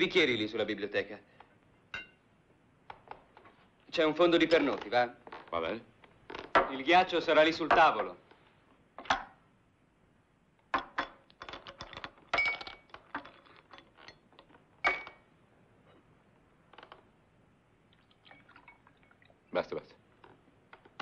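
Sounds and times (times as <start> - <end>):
glass ringing: 1.9 - 2.2, 12.3 - 12.9, 14.1 - 15.2
glassware and ice clinking: 1.9 - 2.2, 10.8 - 15.3, 18.0 - 19.4.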